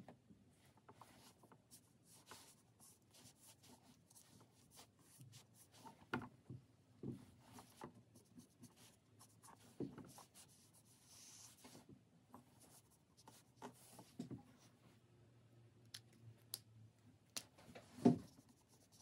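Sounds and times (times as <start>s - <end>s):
pen scratching on paper: 1.0s - 5.9s, 7.5s - 11.8s, 18.3s - 19.0s.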